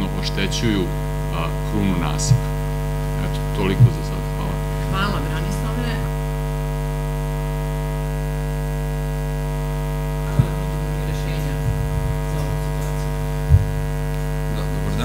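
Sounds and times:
electrical mains hum: 0.0s - 15.0s
microphone handling thumps: 2.2s - 4.8s, 9.9s - 14.5s.

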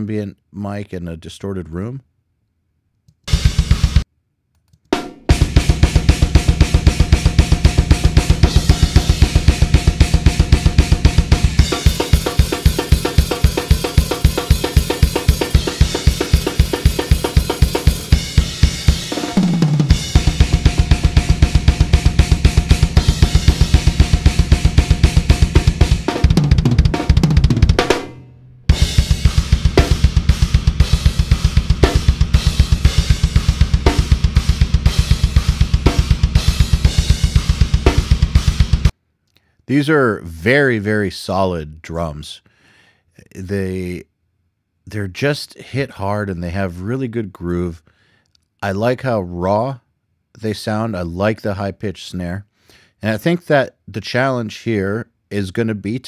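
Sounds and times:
fast double bass drum: 3.3s - 4.0s, 5.3s - 28.1s, 28.7s - 38.9s
cymbals and hi-hat: 5.3s - 27.2s, 28.7s - 38.9s.

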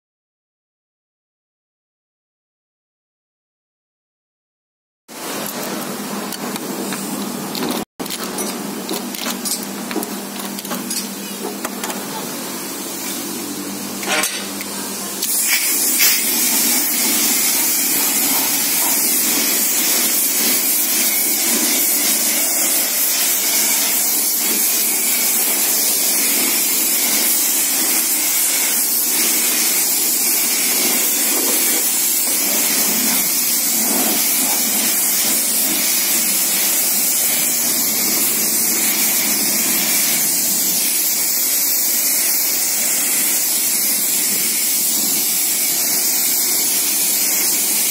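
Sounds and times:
foam lance spraying hiss: 15.3s - 47.9s.

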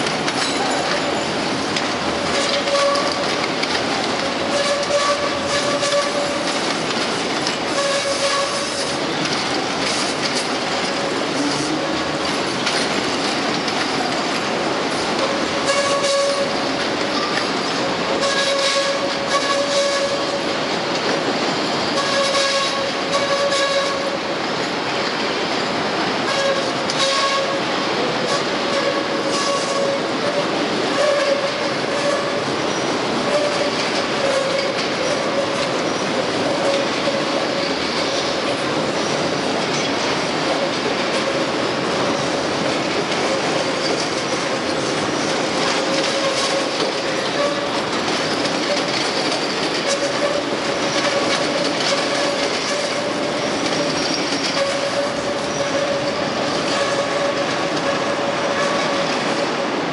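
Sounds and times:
wheels clattering over rail joints: 0.0s - 59.9s
train wheels squealing: 49.8s - 59.2s.

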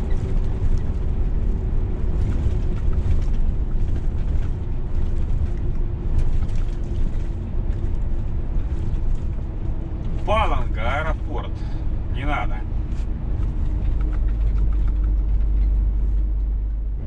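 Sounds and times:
truck engine and road rumble: 0.0s - 17.0s.

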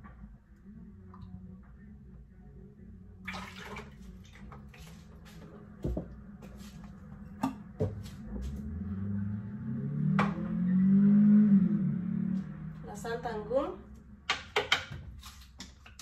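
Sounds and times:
liquid pouring and splashing: 3.3s - 4.9s.

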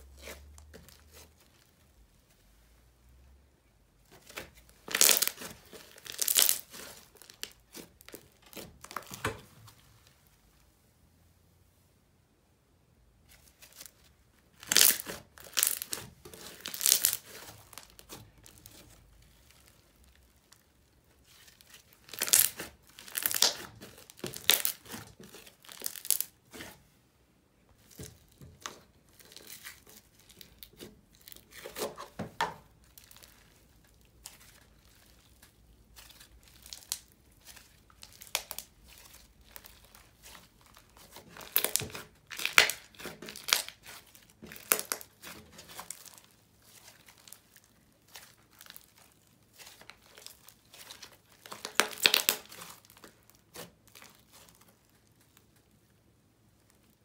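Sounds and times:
crackly crinkling pops: 4.1s - 9.4s, 14.6s - 20.7s, 21.6s - 26.4s, 27.7s - 55.8s
slime being squeezed: 4.2s - 9.3s, 13.5s - 20.5s, 21.3s - 26.8s, 32.7s - 55.0s.

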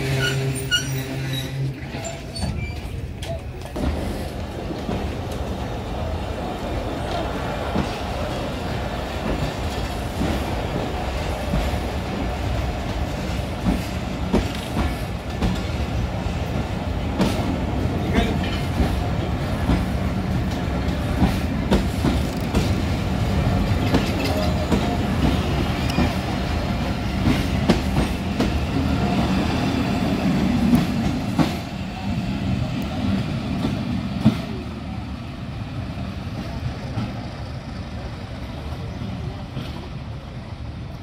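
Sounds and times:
train wheels clacking over rail joints: 0.0s - 5.9s, 7.0s - 31.7s.

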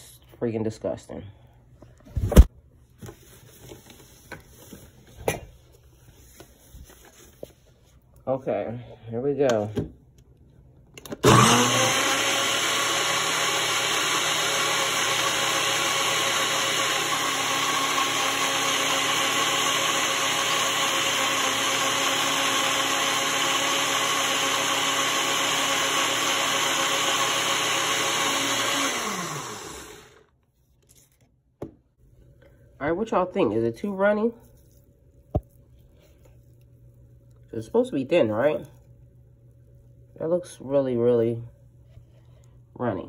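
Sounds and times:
countertop blender running: 11.1s - 30.4s.

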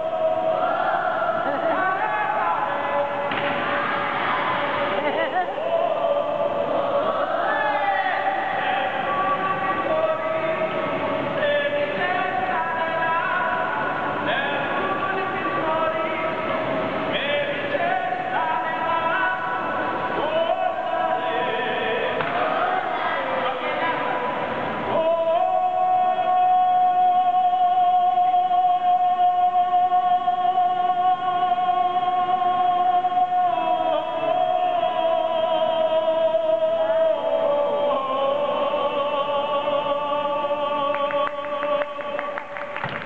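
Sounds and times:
person singing operatically: 24.8s - 42.6s.

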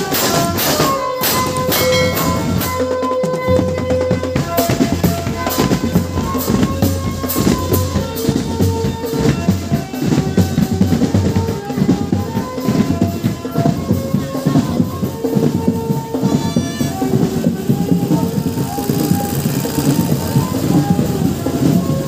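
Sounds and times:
marching drums beating: 0.1s - 22.0s
held melody notes: 14.6s - 22.0s.

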